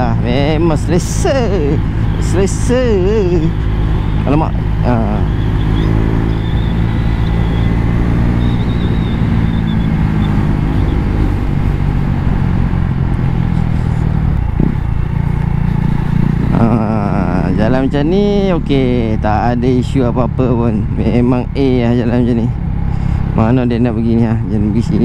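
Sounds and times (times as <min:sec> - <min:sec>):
motorcycle engine running: 0:00.0 - 0:25.0
wind and road noise: 0:00.0 - 0:25.0.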